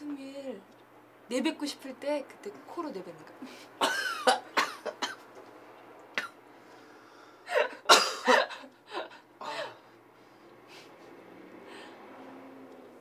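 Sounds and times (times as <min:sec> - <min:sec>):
man coughing: 0:03.8 - 0:05.2, 0:07.5 - 0:09.8.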